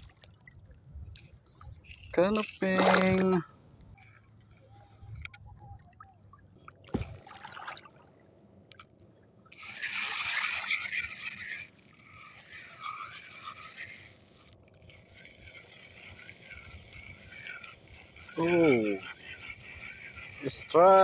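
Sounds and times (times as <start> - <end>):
fishing reel gears whirring: 1.8 - 4.7, 9.5 - 21.0.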